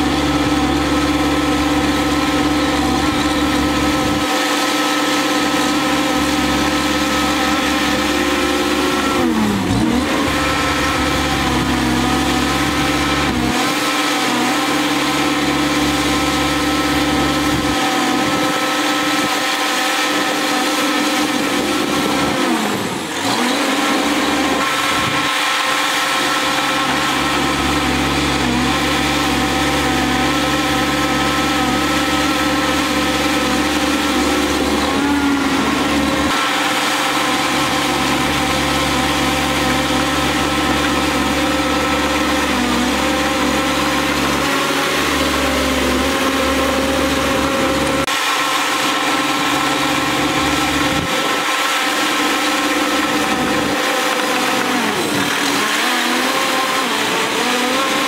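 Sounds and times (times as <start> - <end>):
bulldozer diesel engine running: 0.0 - 58.0.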